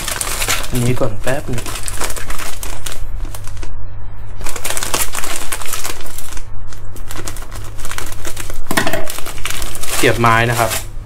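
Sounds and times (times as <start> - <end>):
plastic bag crinkling: 0.0 - 3.7, 4.4 - 10.9
steady low hum: 0.0 - 11.0.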